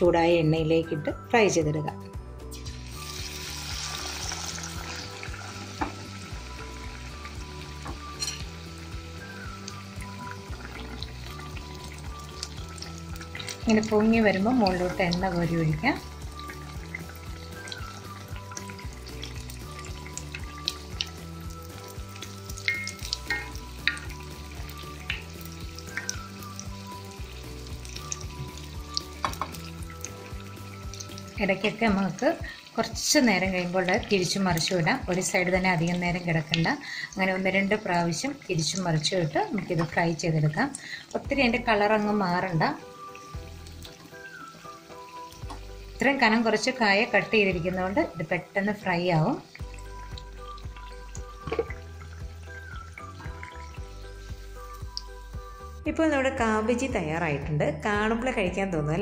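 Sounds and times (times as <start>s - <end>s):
deep-frying sizzle: 2.4s - 55.8s
spoon scooping oil: 2.5s - 32.6s.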